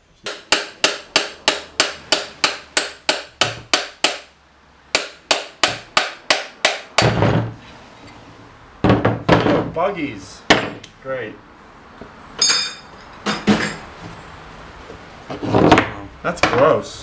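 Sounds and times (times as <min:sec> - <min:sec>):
hammer striking steel punch: 0:04.9 - 0:07.4.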